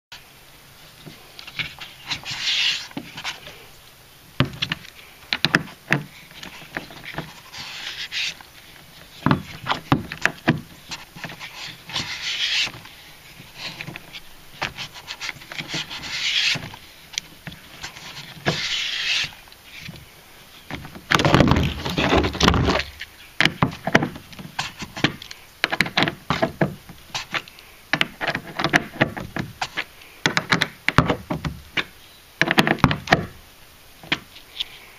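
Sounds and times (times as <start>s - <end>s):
scraping and rubbing on plastic: 0.9s - 3.7s, 4.4s - 33.4s
bumping against plastic hull: 9.2s - 10.7s, 20.7s - 24.2s.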